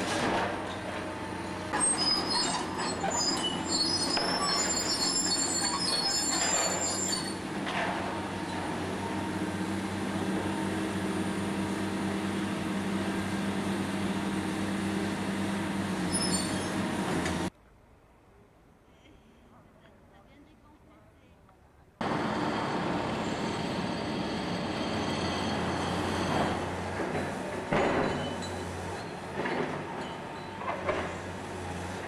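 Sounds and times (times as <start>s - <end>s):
excavator engine drone: 0.0s - 17.5s, 22.0s - 32.0s
metallic squeals and screeches: 1.7s - 7.5s, 16.0s - 16.8s, 22.4s - 26.7s.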